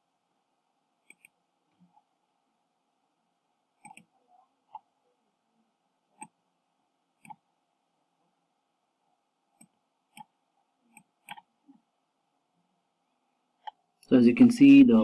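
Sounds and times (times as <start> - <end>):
computer mouse clicking: 1.0 - 2.0, 3.8 - 4.1, 6.1 - 6.4, 7.2 - 7.4, 9.5 - 11.5.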